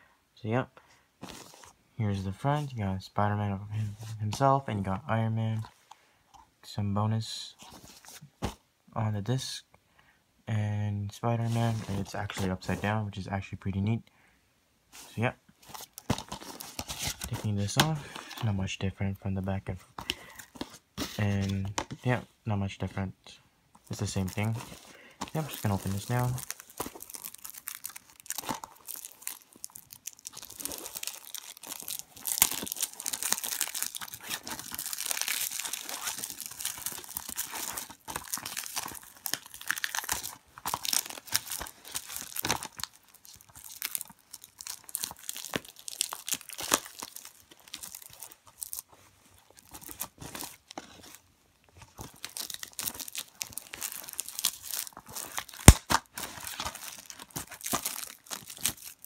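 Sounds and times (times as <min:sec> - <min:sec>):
plastic wrap tearing and crinkling: 0:15.6 - 0:18.4, 0:23.9 - 0:59.0.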